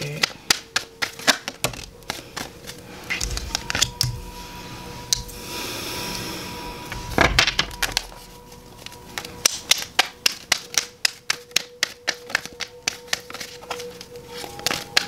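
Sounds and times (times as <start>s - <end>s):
cards being shuffled: 0.0s - 4.2s, 7.6s - 15.0s.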